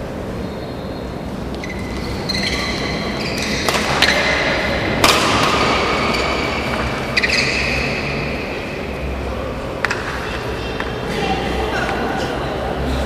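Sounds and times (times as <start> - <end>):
sports hall noise: 0.0 - 13.0
racket hitting shuttlecock: 1.8 - 7.8, 9.8 - 11.0.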